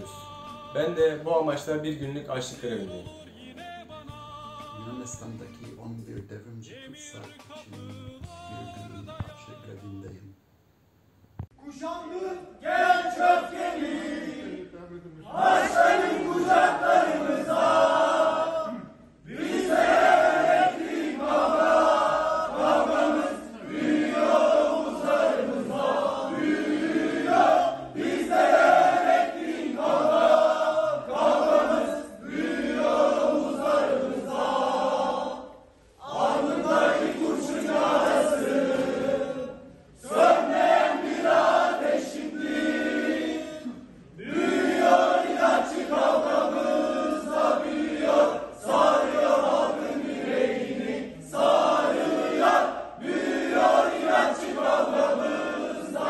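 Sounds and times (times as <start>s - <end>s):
group singing in unison: 0.0s - 1.0s, 12.6s - 56.0s.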